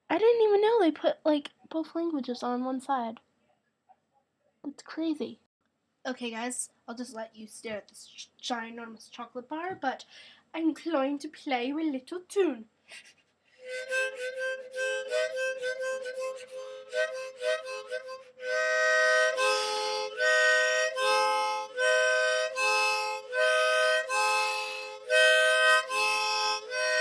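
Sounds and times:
harmonica playing a tune: 13.6 - 27.0.

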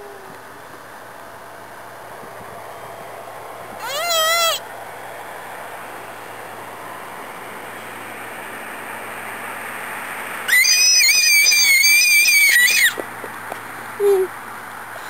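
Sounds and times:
child squealing: 3.8 - 4.6, 10.5 - 13.0, 14.0 - 14.3.

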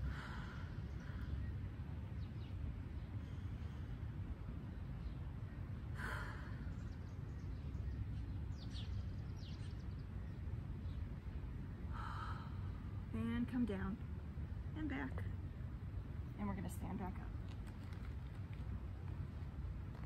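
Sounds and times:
woman breathing deeply: 0.0 - 1.5, 6.0 - 6.8, 11.9 - 13.0
steady low rumble: 0.0 - 20.0.

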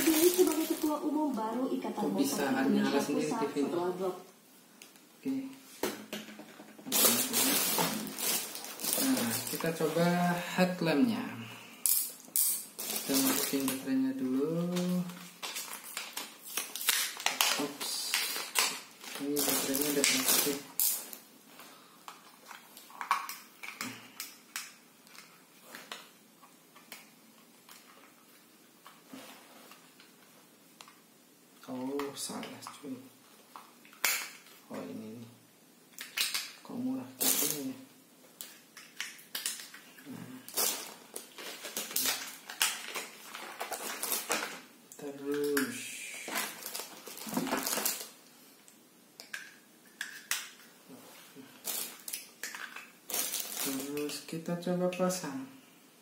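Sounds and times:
rustling and scraping plastic: 0.0 - 1.1, 6.3 - 10.2, 12.8 - 13.9, 14.6 - 21.2, 39.3 - 44.7, 46.2 - 48.2, 50.9 - 54.2.

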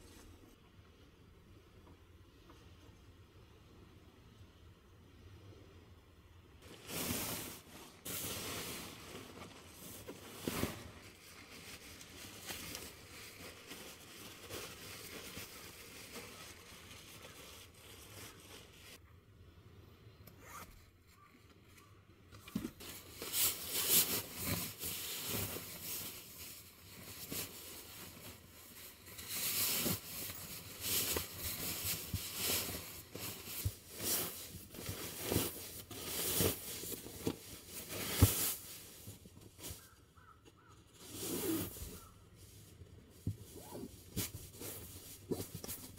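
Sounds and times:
fabric rustling and scraping: 6.6 - 19.0, 22.4 - 45.9.

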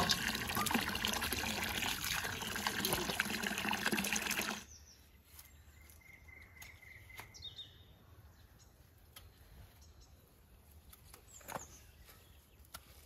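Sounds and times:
water splashing in colander: 0.0 - 4.6
bird chirps: 4.6 - 10.4.

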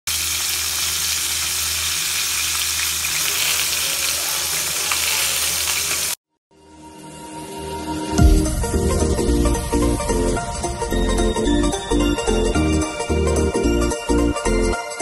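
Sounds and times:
chicken sizzling in a pan: 0.1 - 6.2.

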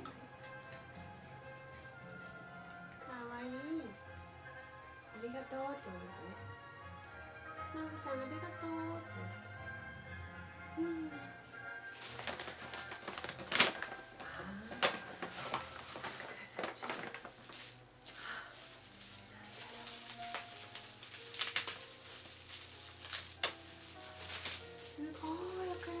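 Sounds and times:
plastic wrapping crinkling: 11.6 - 26.0.

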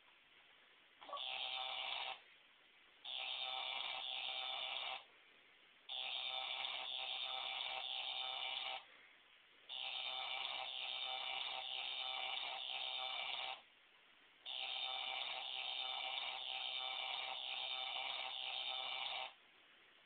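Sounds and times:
electronic buzz from shock toy: 1.1 - 2.2, 3.0 - 5.0, 5.9 - 8.8, 9.7 - 13.6, 14.5 - 19.4.

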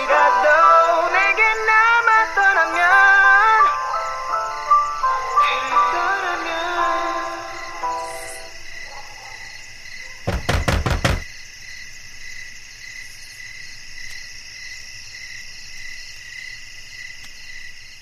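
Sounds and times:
song: 0.0 - 8.6
crickets chirping: 0.0 - 18.0
loud knocks: 10.3 - 11.3.

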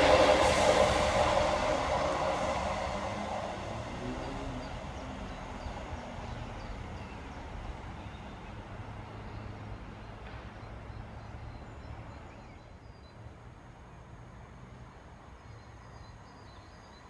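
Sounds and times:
train engine low drone: 0.0 - 17.0
birds chirping faintly: 1.8 - 13.3.

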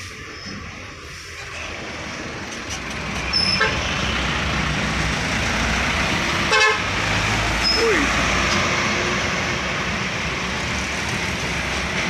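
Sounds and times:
truck driving past: 1.4 - 12.0
truck horn toot: 3.4 - 3.9, 6.5 - 6.9.

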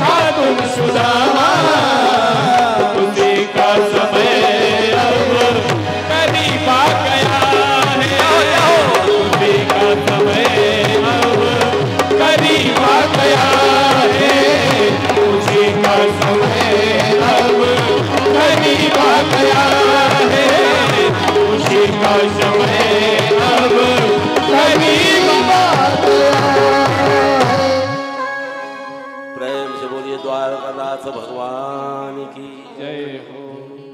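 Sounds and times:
keyboard melody: 0.0 - 31.9
tabla drumming: 0.0 - 32.3.

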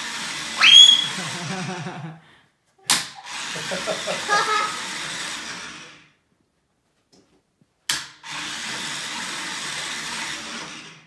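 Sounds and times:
toy car wash whirring: 0.0 - 2.0, 2.9 - 6.2, 7.9 - 11.0.

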